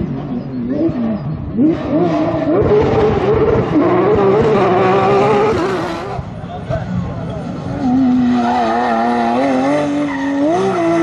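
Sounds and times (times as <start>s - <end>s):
rally car engine revving: 0.0s - 11.0s.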